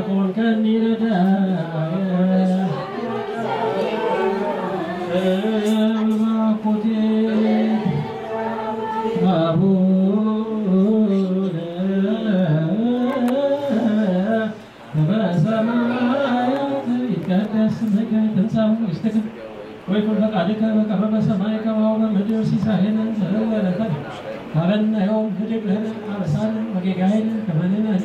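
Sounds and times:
congregation chanting in unison: 0.0s - 18.6s.

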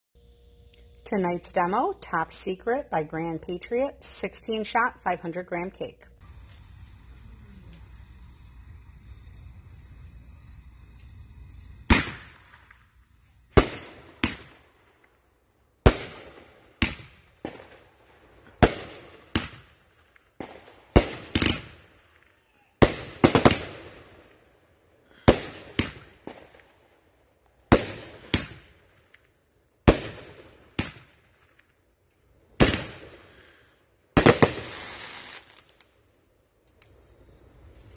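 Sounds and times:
fireworks bangs: 6.2s - 15.1s, 15.8s - 24.4s, 25.1s - 26.8s, 27.6s - 29.2s, 29.8s - 31.7s, 32.5s - 33.5s, 34.1s - 35.9s
dense fireworks volley: 6.2s - 29.2s, 29.8s - 31.8s, 32.4s - 35.9s.

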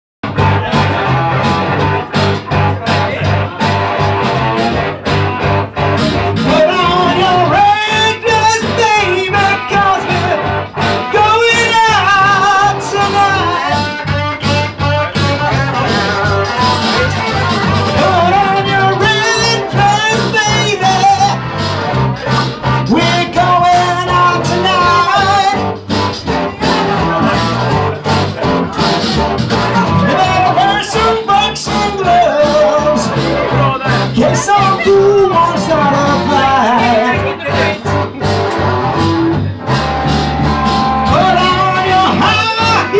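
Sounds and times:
acoustic guitar: 0.2s - 42.9s
electric bass: 0.2s - 42.9s
electric guitar: 0.2s - 42.9s
man singing into a microphone: 6.2s - 38.3s, 40.6s - 42.9s.

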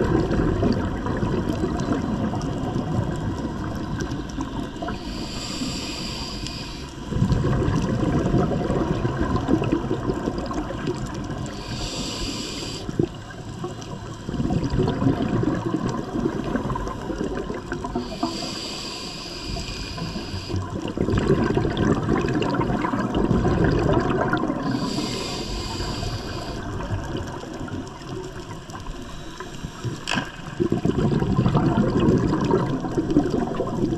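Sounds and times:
bubbling exhaust: 0.0s - 13.7s, 14.3s - 28.5s, 30.5s - 33.9s
regulator inhale hiss: 4.1s - 7.1s, 11.4s - 14.3s, 17.9s - 20.8s, 24.6s - 27.1s, 29.0s - 30.1s.

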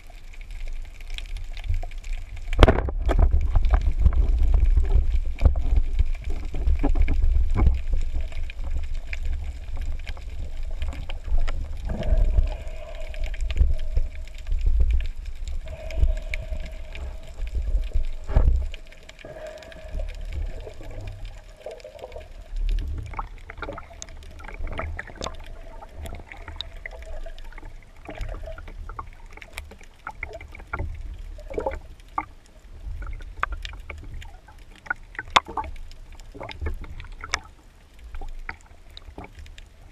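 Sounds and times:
clicks and crackles: 0.0s - 39.9s
underwater rumble of water: 0.0s - 39.9s
steady hum: 11.7s - 23.6s.

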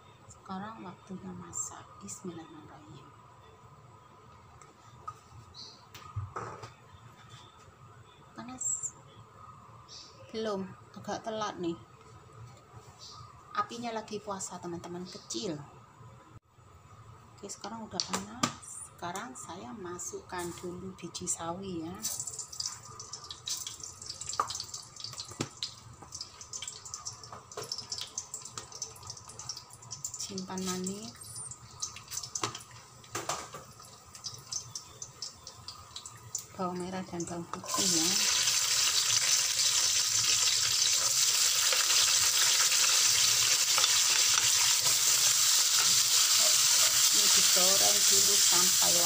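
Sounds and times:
seeds sizzling and popping in oil: 22.0s - 49.0s.

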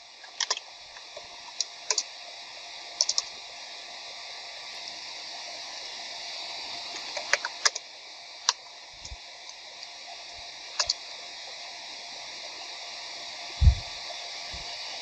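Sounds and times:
steady background hiss: 0.0s - 15.0s
computer keys clicking: 3.0s - 3.3s.

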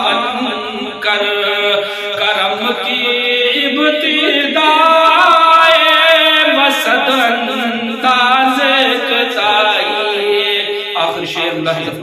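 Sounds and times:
man chanting devotional song: 0.0s - 12.0s.

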